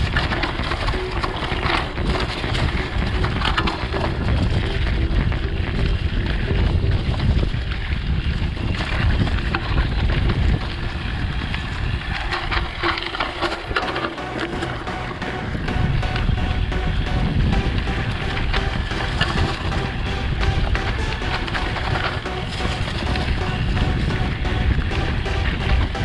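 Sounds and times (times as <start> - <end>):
wind buffeting microphone: 0.0 - 12.8
mountain bike rattling: 0.0 - 13.9.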